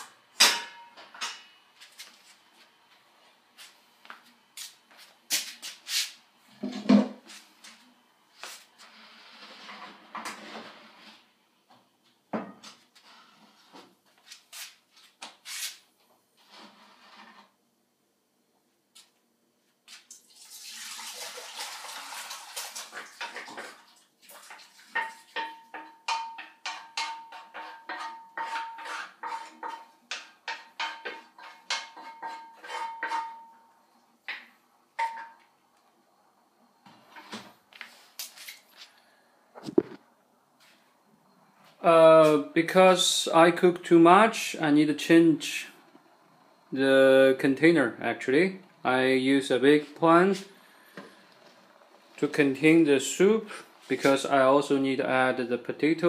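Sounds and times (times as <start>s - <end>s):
short rubbing noises: 15.4s - 15.8s
utensil knocking on metal pan: 25.0s - 31.2s.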